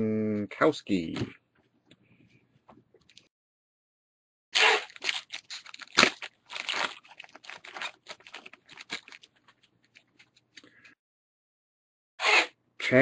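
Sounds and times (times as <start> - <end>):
wrapper crinkling and tearing: 4.6 - 10.7
cards rustling and snapping: 4.8 - 10.9.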